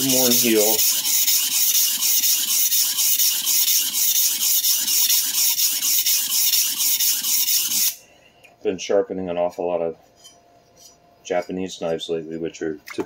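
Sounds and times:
knife scraping on sharpening stone: 0:10.2 - 0:11.0.

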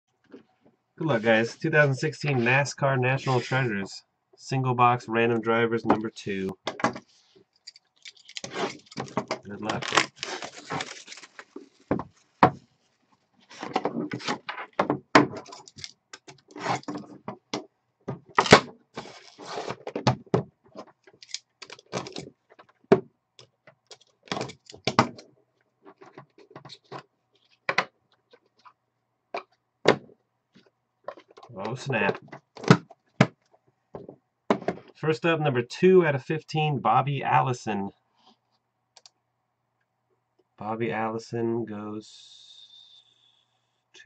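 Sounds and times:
plastic wrap and cardboard rustling: 0:08.0 - 0:14.5, 0:18.4 - 0:19.9, 0:21.6 - 0:22.4.

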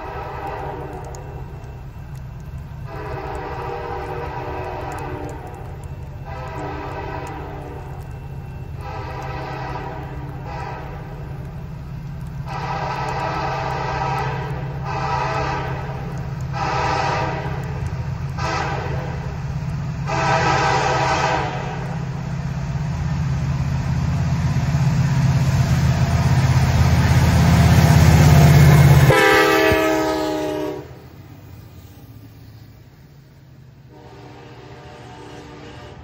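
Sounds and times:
train horn blasts: 0:00.0 - 0:01.4, 0:02.8 - 0:05.6, 0:06.2 - 0:07.9, 0:08.8 - 0:11.3, 0:12.4 - 0:17.8, 0:18.4 - 0:19.3, 0:20.0 - 0:22.0, 0:28.2 - 0:31.0, 0:33.9 - 0:36.0
diesel locomotive rumble: 0:00.0 - 0:36.0.

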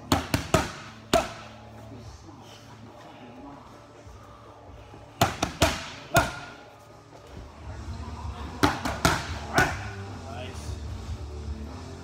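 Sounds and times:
boxing gloves smacking mitts: 0:00.0 - 0:01.6, 0:05.1 - 0:06.7, 0:08.4 - 0:10.0.

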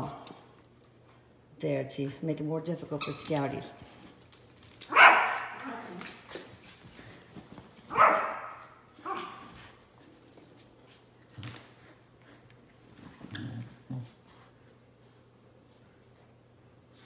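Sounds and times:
dogs barking: 0:04.9 - 0:05.7, 0:07.9 - 0:09.4.

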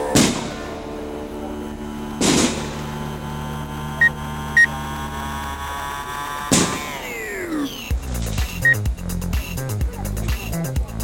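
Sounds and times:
steady hum of held tones: 0:00.0 - 0:09.2
firework blast: 0:00.1 - 0:01.0, 0:02.2 - 0:03.1, 0:06.5 - 0:07.2.

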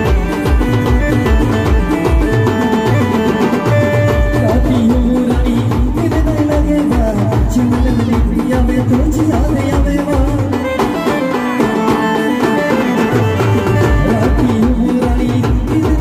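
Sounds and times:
big bass drums beating: 0:03.8 - 0:10.5
wavering lead melody: 0:10.6 - 0:14.8.

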